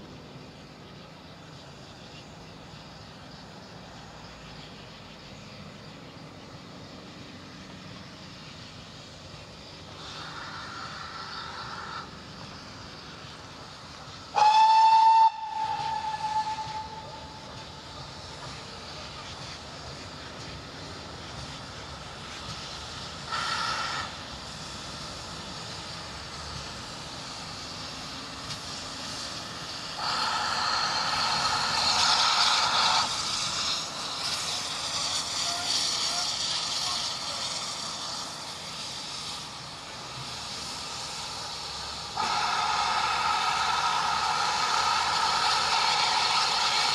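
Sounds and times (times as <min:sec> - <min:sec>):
steady hiss of steam: 0:00.0 - 0:46.9
burst of steam: 0:07.1 - 0:46.9
steam locomotive whistle blast: 0:14.3 - 0:17.6, 0:42.2 - 0:46.9.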